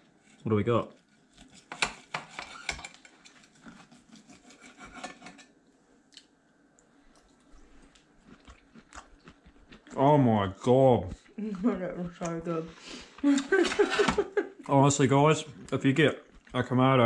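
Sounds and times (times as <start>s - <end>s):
cutlery scraping on plates: 1.6s - 5.5s.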